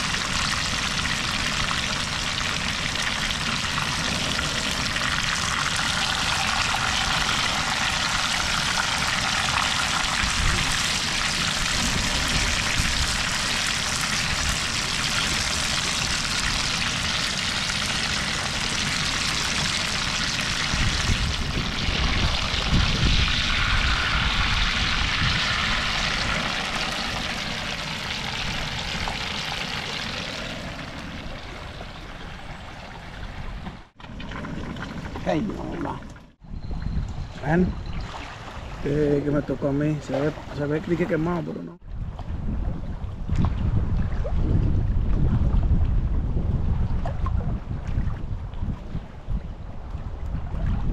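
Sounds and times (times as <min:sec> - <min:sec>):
oil sizzling in frying pan: 0:00.0 - 0:21.4
wind rumbling on microphone: 0:00.0 - 0:50.9.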